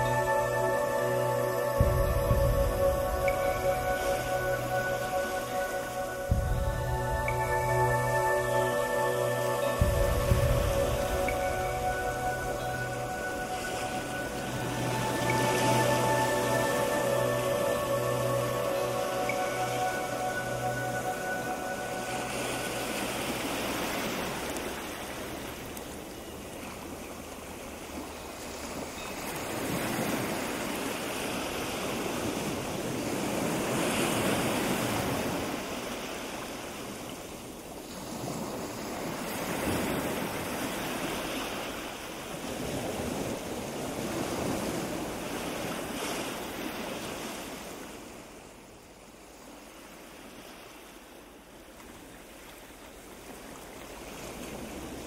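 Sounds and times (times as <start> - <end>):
wind blowing over microphone: 0.0 - 24.5.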